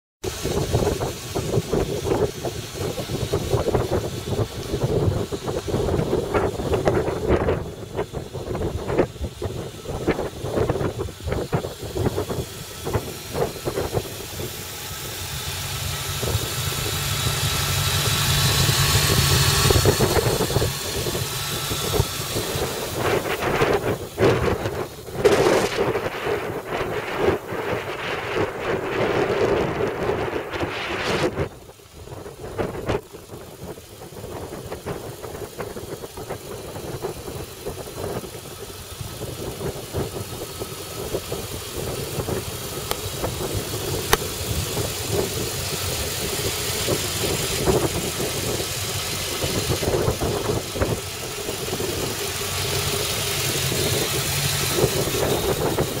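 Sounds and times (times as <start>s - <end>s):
wind buffeting microphone: 0.2s - 52.5s, 53.6s - 56.0s
car engine idling: 0.2s - 56.0s.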